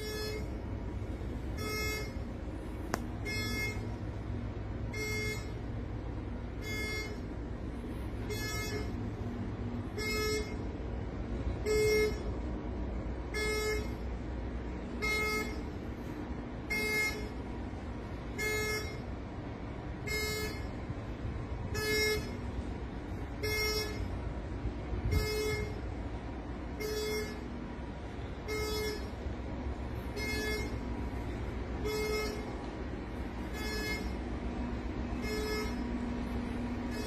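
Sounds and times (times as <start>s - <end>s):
ship alarm pulses: 0.0s - 37.0s.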